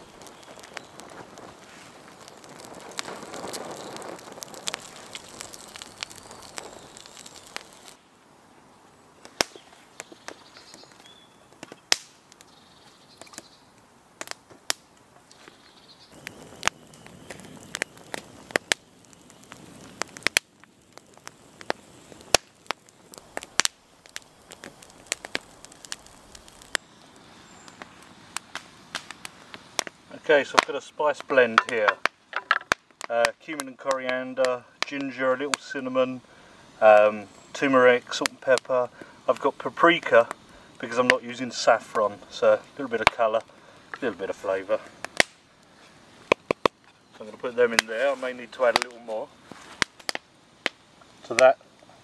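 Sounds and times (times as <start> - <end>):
campfire crackling and popping: 0.0 - 52.0.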